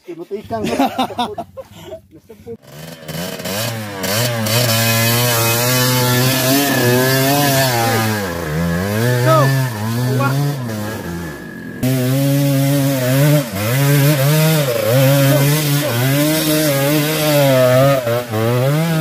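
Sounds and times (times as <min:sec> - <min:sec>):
dirt bike engine revving: 0:02.6 - 0:19.0.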